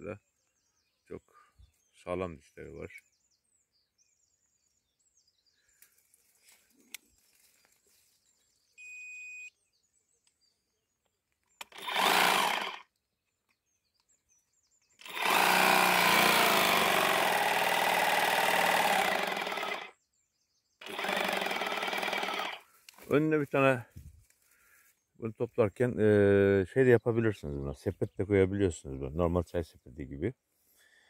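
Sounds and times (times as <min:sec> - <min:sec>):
short steady beep: 0:08.8 - 0:09.5
cutter bar motor running: 0:11.6 - 0:12.9, 0:15.0 - 0:19.9, 0:20.8 - 0:22.6.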